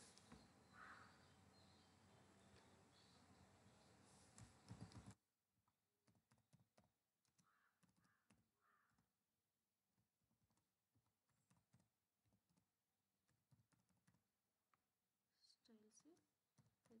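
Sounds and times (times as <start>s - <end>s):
computer keyboard typing clicks: 4.4s - 5.2s, 13.3s - 14.2s.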